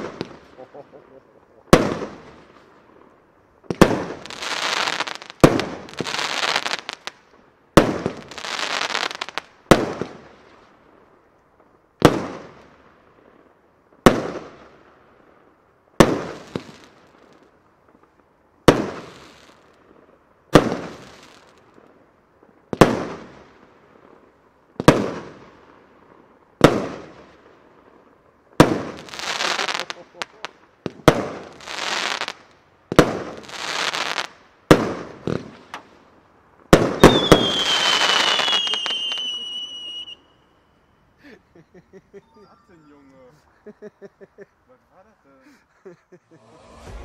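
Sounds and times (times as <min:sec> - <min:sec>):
firework crackling: 0:00.0 - 0:03.0, 0:03.7 - 0:10.7, 0:28.5 - 0:40.5, 0:46.3 - 0:47.0.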